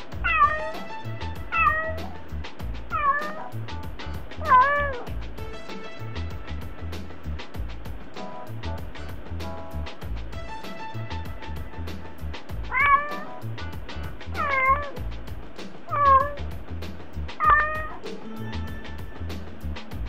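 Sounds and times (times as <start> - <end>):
background music with steady beat: 0.0 - 20.0
cat meowing: 0.2 - 0.9, 1.5 - 2.2, 2.9 - 3.5, 4.4 - 5.1, 12.7 - 13.4, 14.4 - 15.0, 15.9 - 16.4, 17.4 - 18.1.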